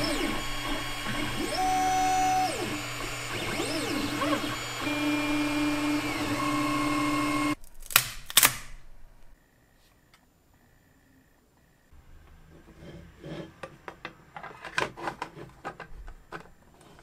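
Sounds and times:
stepper motors whining: 0.0s - 7.6s.

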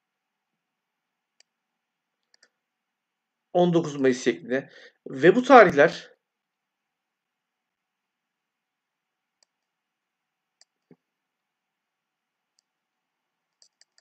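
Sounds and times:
computer mouse clicks: 2.2s - 2.6s, 9.4s - 9.8s, 10.6s - 11.0s, 13.5s - 14.0s.

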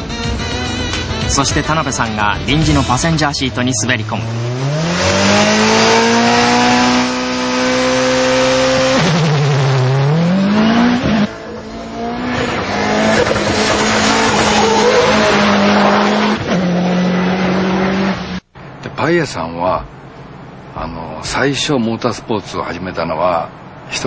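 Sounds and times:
rally car engine revving: 1.4s - 18.4s.

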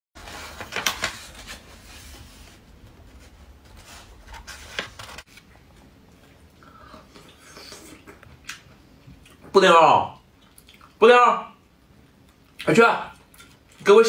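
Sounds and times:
book pages rustling: 0.2s - 5.8s.

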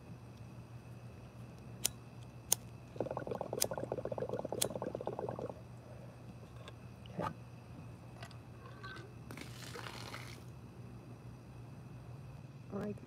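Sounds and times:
water pipe bubbling: 2.9s - 5.7s.

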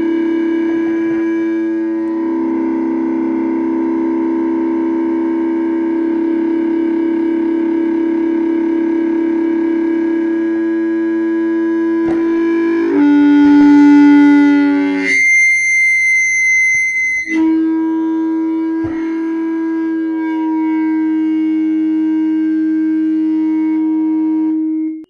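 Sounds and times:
audio feedback howl and whine: 0.0s - 25.0s.

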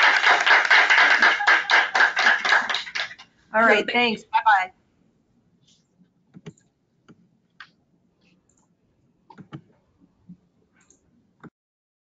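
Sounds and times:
mouse and keyboard clicks: 9.3s - 9.7s.

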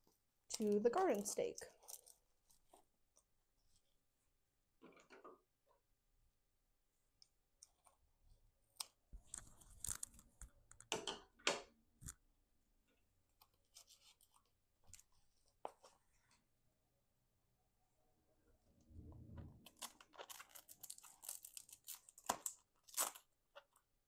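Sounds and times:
velcro ties scratching and rustling: 1.0s - 2.8s, 8.8s - 10.6s, 19.7s - 23.3s.

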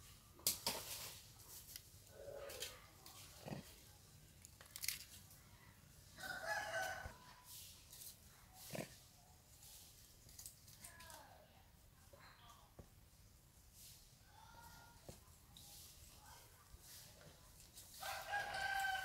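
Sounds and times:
sharp clicks and rustles: 4.4s - 5.4s.

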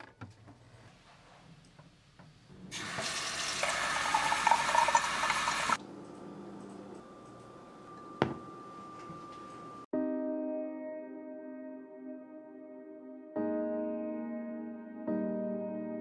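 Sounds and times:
water running from faucet: 2.7s - 5.8s.

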